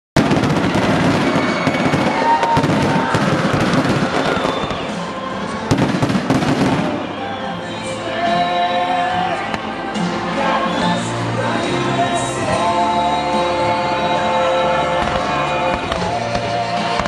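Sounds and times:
fireworks crackling and popping: 0.2 - 7.9, 14.9 - 17.0.

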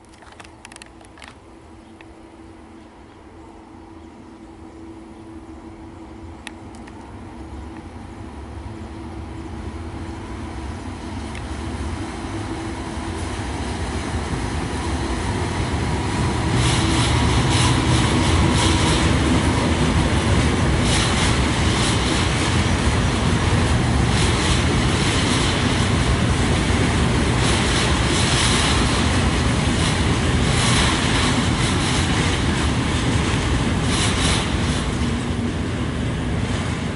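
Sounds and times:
passenger train rumbling by: 0.0 - 36.9
train wheels clattering: 12.3 - 36.9.

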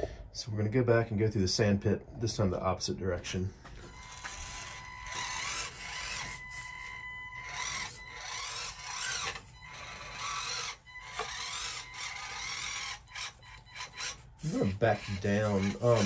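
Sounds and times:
small electric motor whining: 3.8 - 16.0.

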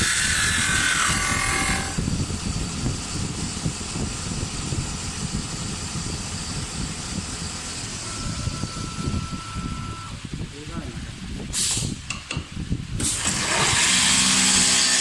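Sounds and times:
lathe motor rumbling: 0.1 - 10.5
steady high tone: 7.9 - 10.2.

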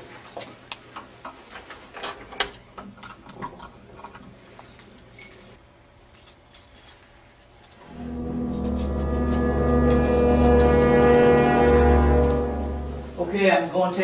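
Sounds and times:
keys jangling: 3.9 - 7.9.

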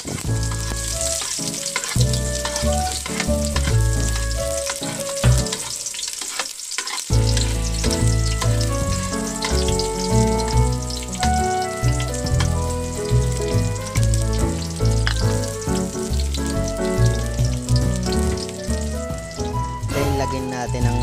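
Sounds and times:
background music with bass line: 0.0 - 5.6, 7.1 - 21.0
metal spoon stirring in pot: 0.0 - 13.5
onions sizzling in oil: 0.0 - 21.0.

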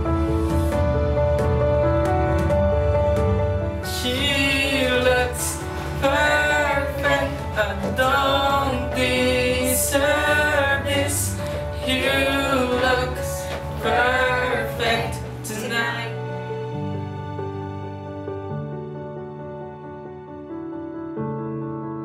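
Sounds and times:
sustained accompaniment: 0.7 - 18.6
person singing with vibrato: 3.9 - 16.3.

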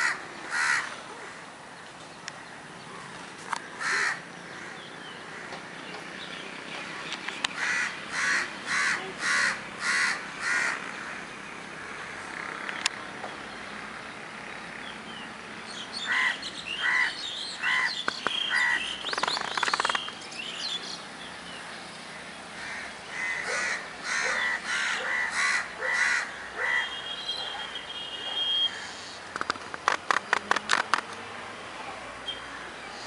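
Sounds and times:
crows cawing: 0.0 - 1.4, 3.0 - 5.6, 7.6 - 12.3, 16.0 - 18.9, 22.2 - 27.0
small birds chirping: 10.8 - 23.6.

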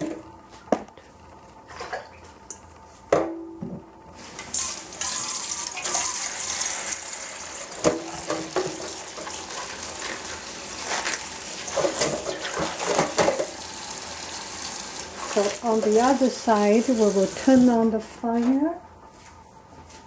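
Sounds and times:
leaves rubbed and rinsed by hand: 8.6 - 18.4
metal bowl clanking against sink: 11.7 - 13.5.

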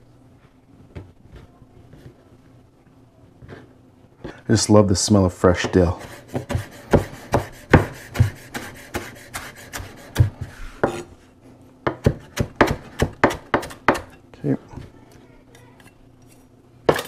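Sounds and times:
knife chopping on wooden board: 5.6 - 11.1, 11.8 - 14.2.

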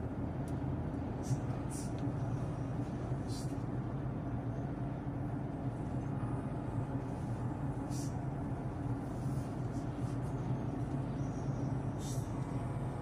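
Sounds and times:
car engine and tyre noise: 0.0 - 13.0.

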